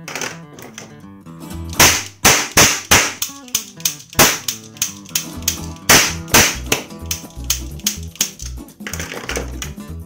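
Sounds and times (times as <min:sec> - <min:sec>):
background music: 0:00.0 - 0:10.0
cap gun cracks: 0:01.7 - 0:09.1.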